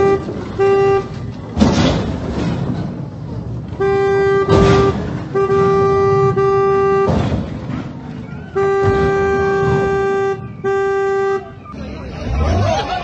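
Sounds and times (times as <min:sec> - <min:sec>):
car horn blasts: 0:00.0 - 0:01.3, 0:03.7 - 0:07.4, 0:08.4 - 0:11.8
rushes of street noise: 0:00.0 - 0:13.0.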